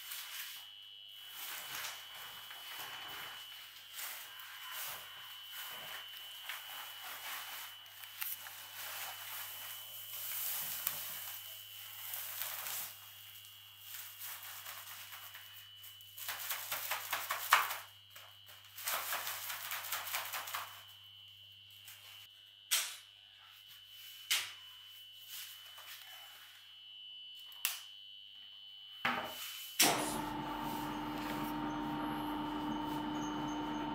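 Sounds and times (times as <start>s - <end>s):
faint high whine: 0.0s - 33.9s
paper sacks rustling: 1.2s - 13.1s.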